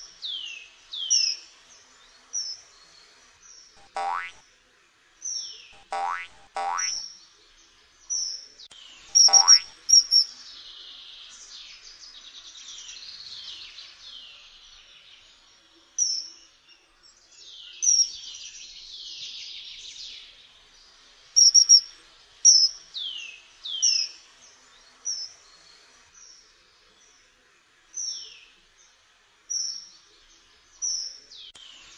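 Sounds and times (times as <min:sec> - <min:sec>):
faint bird twittering: 0:08.1 - 0:11.8, 0:21.4 - 0:27.2
kingfisher shrill whistled calls: 0:21.4 - 0:21.8.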